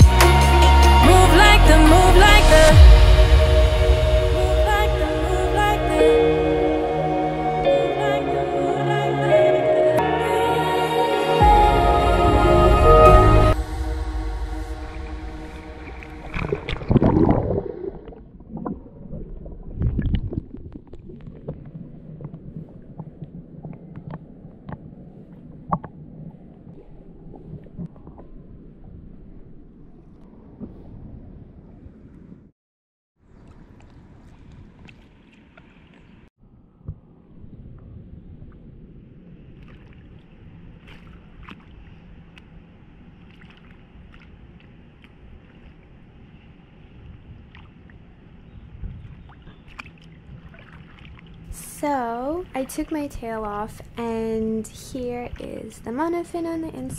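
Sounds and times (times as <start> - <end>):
low rushing noise: 0.0 - 20.5
muffled water splashing: 1.1 - 32.3, 33.2 - 56.9
underwater bubbles: 14.8 - 29.6
pool water lapping and sloshing: 33.2 - 36.3, 37.4 - 56.9
short sharp splashes: 49.3 - 51.5.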